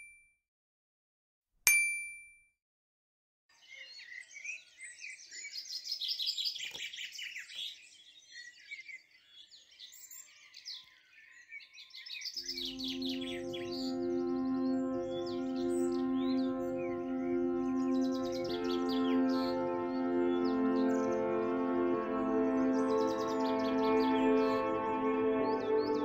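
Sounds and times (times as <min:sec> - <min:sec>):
birds chirping and singing: 0:03.5 - 0:26.0
soft music: 0:12.4 - 0:26.0.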